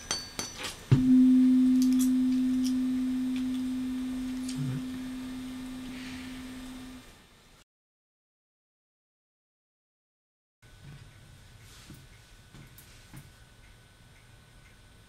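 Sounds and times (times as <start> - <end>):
tuning fork pure tone: 0.9 - 7.0.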